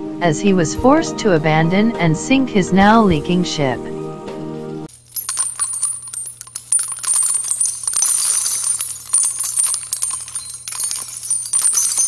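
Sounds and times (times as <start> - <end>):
high bright jingles: 4.9 - 12.0.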